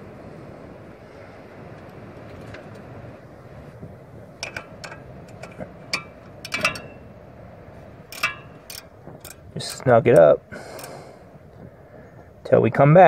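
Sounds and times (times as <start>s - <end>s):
ratcheting wrench clicking: 4.4s - 7.1s, 8.1s - 9.9s, 10.6s - 11.0s.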